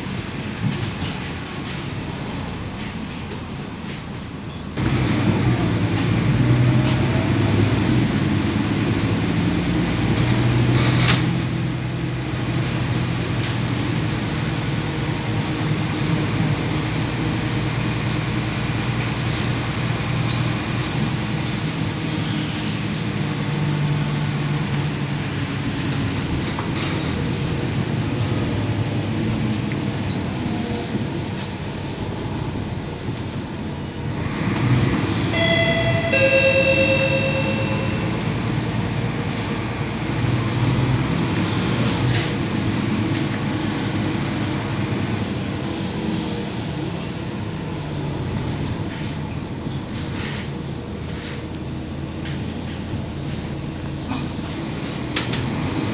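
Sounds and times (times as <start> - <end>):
bus engine and road noise: 0.0 - 55.9
two-note electronic chime: 35.4 - 38.5.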